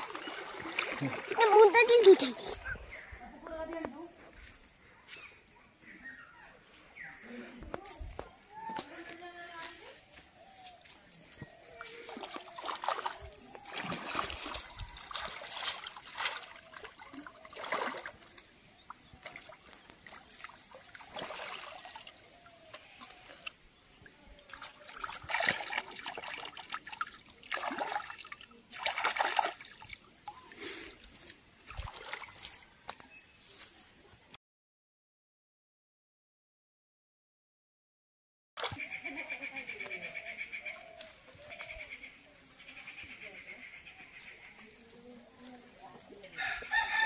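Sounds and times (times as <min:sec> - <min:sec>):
hands splashing in water: 0:00.0 - 0:02.4, 0:12.0 - 0:18.5, 0:19.2 - 0:23.5, 0:24.5 - 0:30.8, 0:31.6 - 0:32.6.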